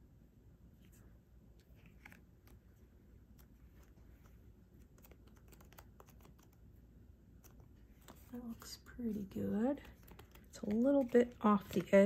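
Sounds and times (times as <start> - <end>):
paper clicks and rustles: 1.6 - 6.6, 9.2 - 12.0.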